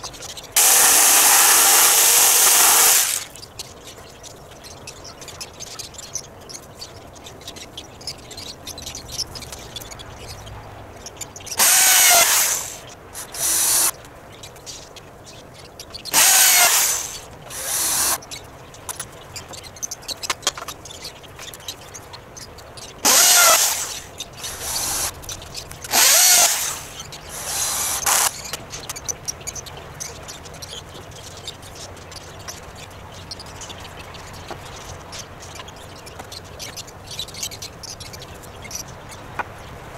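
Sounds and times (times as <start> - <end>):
cordless drill running: 0.6 - 3.3, 11.6 - 13.9, 16.1 - 18.2, 23.0 - 25.1, 25.9 - 28.4.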